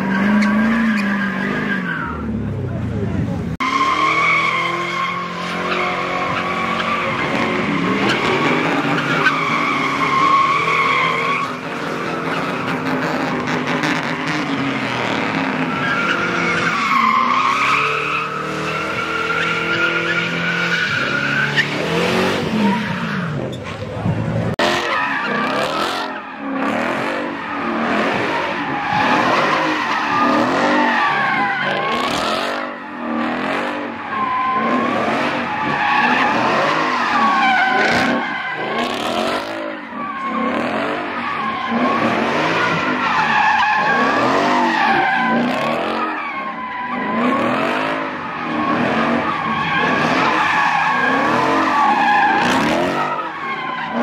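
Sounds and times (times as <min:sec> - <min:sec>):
car engine revving: 0:00.0 - 0:54.0
tyres squealing: 0:03.6 - 0:23.8, 0:41.2 - 0:54.0.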